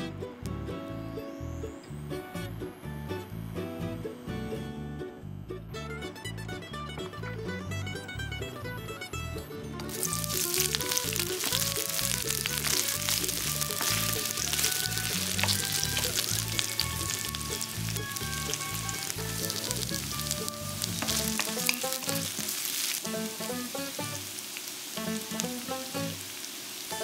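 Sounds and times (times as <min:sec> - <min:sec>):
onions sizzling in hot oil: 0:09.9 - 0:27.0.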